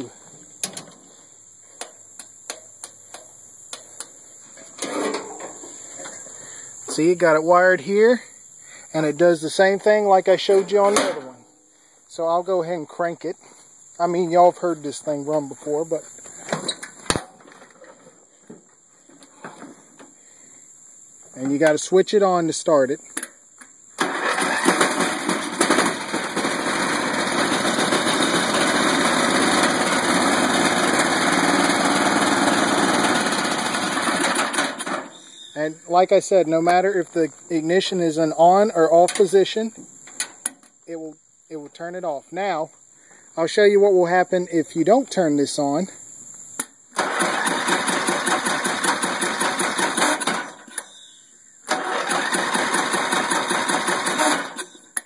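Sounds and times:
mower engine cranking and running: 4.6s - 6.2s, 9.5s - 11.3s, 24.0s - 35.2s, 47.0s - 50.9s, 51.6s - 55.0s.

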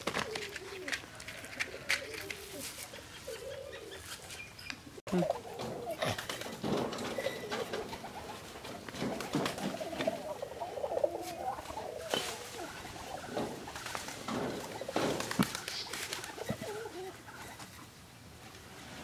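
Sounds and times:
birds cooing: 0.0s - 18.2s
wire mesh rustling and scraping: 5.4s - 17.0s.

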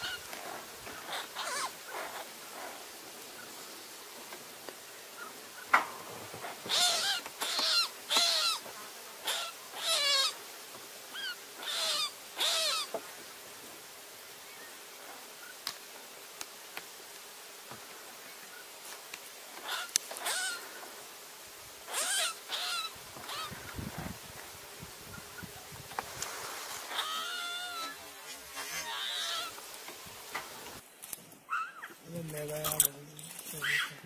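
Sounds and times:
rabbit screaming: 1.1s - 1.7s, 6.7s - 8.6s, 9.2s - 10.4s, 11.2s - 12.9s, 19.6s - 20.6s, 21.9s - 23.6s, 26.9s - 28.0s, 28.7s - 29.6s, 33.6s - 34.0s.

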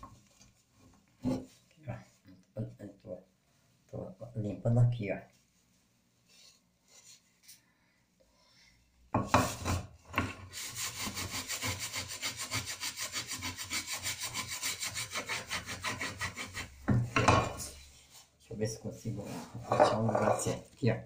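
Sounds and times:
scrubbing a metal pan: 10.5s - 16.8s.

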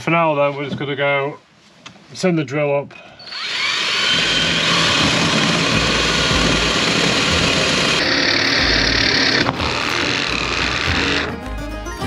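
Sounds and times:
cordless drill drilling into wood: 3.2s - 11.3s.

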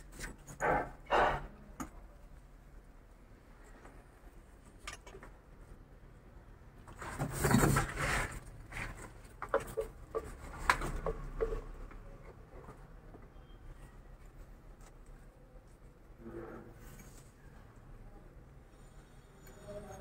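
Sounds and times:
tool rustling scrape: 7.0s - 9.2s.

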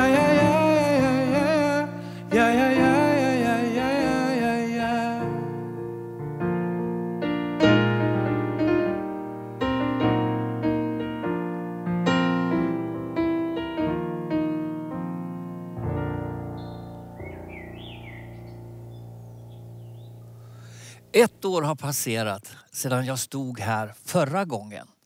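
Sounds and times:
man singing held note: 0.0s - 5.4s
keyboard playing piano chords: 0.0s - 21.2s.

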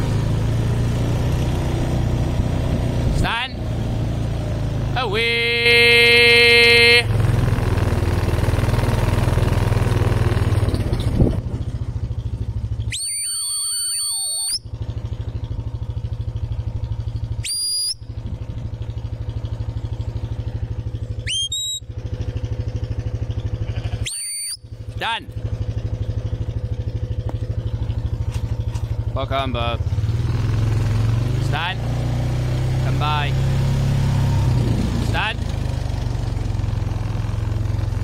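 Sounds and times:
quad bike engine idling: 0.0s - 38.0s
shepherd's whistle: 12.8s - 14.7s, 17.4s - 18.1s, 21.2s - 21.9s, 24.0s - 24.7s.

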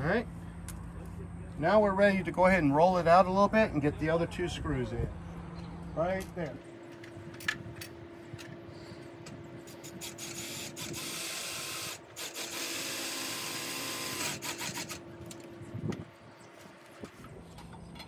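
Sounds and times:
power drill driving a screw: 9.9s - 15.0s.

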